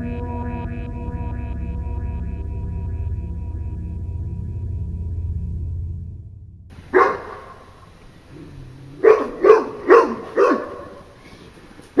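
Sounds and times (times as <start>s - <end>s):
dog barking: 6.9s - 7.7s, 9.0s - 11.2s.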